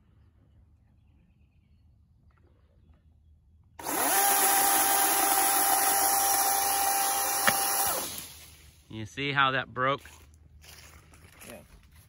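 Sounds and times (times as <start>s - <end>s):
chainsaw cutting branch: 3.8s - 8.6s
electric chainsaw motor whine: 3.8s - 8.6s.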